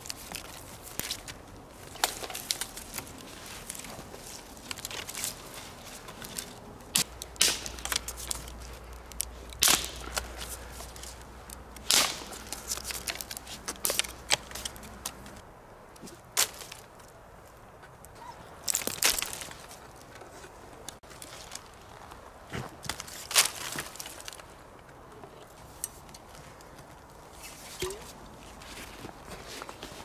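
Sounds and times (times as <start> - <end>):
sticks snapping: 0.0 - 17.1, 18.6 - 19.8
twigs crackling and rustling: 0.0 - 30.0.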